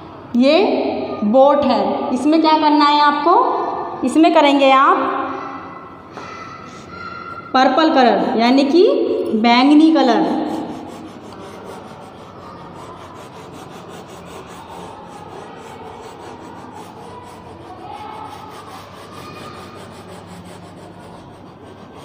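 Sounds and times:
chalk scraping on chalkboard: 9.6 - 22.0.

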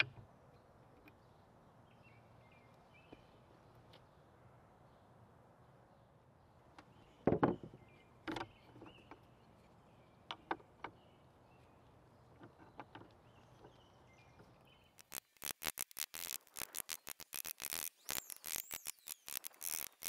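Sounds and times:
faint birdsong: 0.0 - 20.0
sharp evenly spaced strokes: 15.0 - 20.0.

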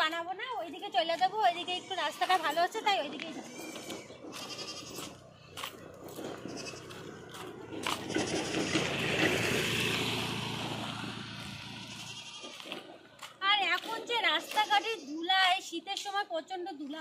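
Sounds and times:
motor scooter engine passing: 3.2 - 15.1.

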